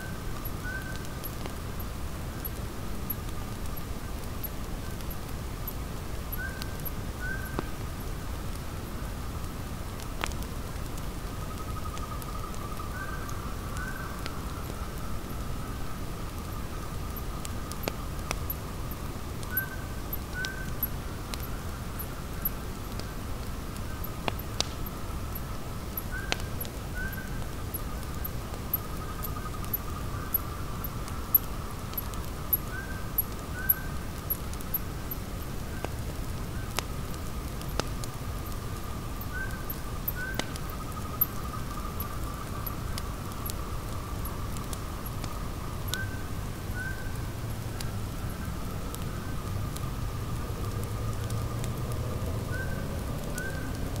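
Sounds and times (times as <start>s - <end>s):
campfire crackling and popping: 0.1s - 54.0s
insects chirping: 23.8s - 35.8s, 38.2s - 47.3s.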